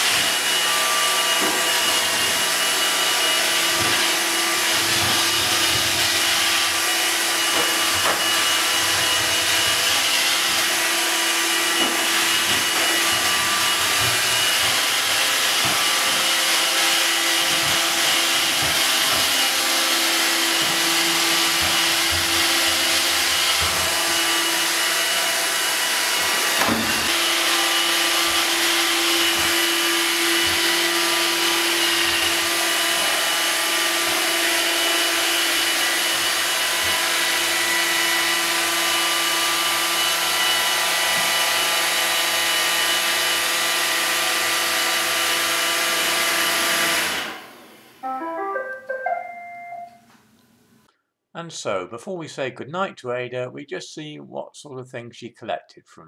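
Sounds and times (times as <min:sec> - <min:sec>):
robot vacuum cleaner whirring: 0:00.0 - 0:48.0
knock: 0:26.6 - 0:27.2.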